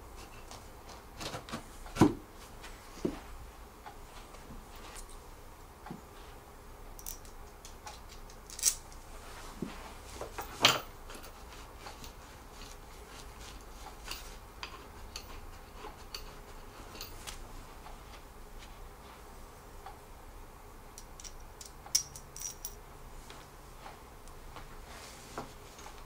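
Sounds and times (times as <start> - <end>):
metal bolts clinking: 21.1 - 22.8.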